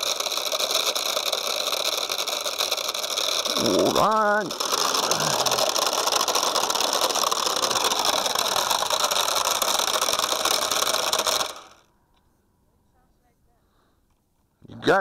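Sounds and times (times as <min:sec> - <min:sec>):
quadcopter motors buzzing: 0:00.0 - 0:11.8.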